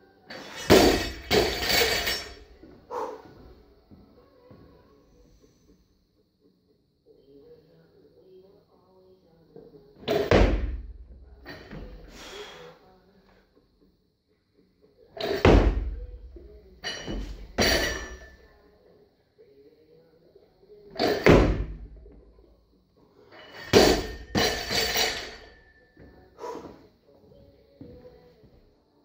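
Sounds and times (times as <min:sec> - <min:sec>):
bar and plates rattling: 0:00.4 - 0:02.4, 0:23.6 - 0:25.7
barbell plates thudding on platform: 0:00.6 - 0:02.1, 0:10.2 - 0:10.8, 0:15.3 - 0:16.0, 0:23.6 - 0:25.5.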